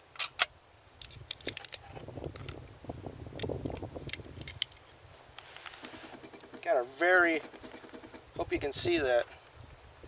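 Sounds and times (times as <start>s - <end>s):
rustling: 4.0s - 8.5s.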